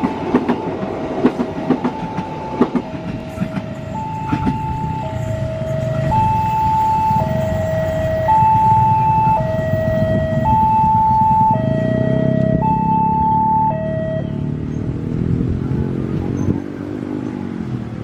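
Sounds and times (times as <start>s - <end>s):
passing train rumble: 0.0s - 18.0s
level crossing two-tone alarm: 1.7s - 14.4s.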